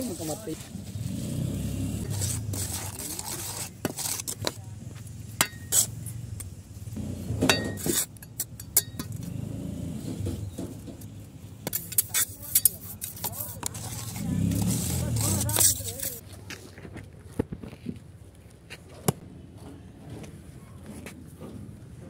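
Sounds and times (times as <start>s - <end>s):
trowel scraping wet concrete: 0.0s - 1.0s, 2.0s - 6.0s, 7.4s - 9.3s, 11.6s - 16.2s
trowel clinking on metal: 5.4s - 5.9s, 7.5s - 9.2s, 11.7s - 16.2s.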